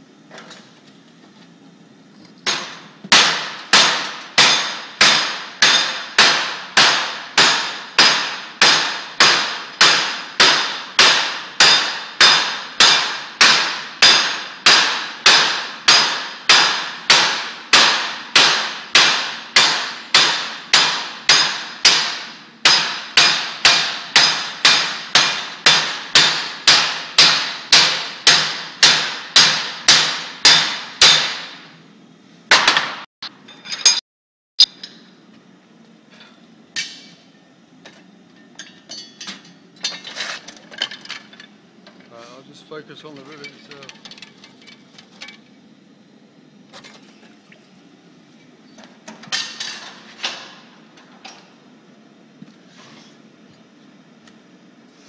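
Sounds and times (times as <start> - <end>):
hammer striking hot metal: 2.4 - 31.7, 32.5 - 34.0, 36.7 - 37.4.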